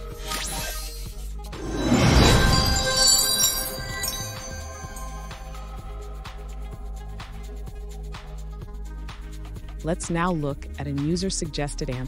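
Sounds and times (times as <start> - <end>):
ringing chime: 1.6 - 6.8.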